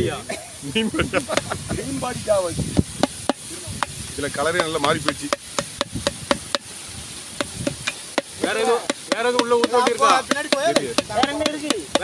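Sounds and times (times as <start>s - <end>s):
people talking: 0.0s - 2.8s, 3.4s - 5.4s, 8.4s - 12.0s
knife chopping in metal pot: 4.6s - 6.7s, 7.4s - 12.0s.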